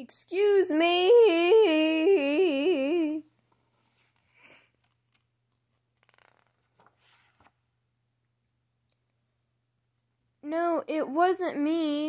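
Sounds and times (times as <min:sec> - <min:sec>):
person sing-song voice: 0:00.0 - 0:03.3
book page turning: 0:03.5 - 0:07.7.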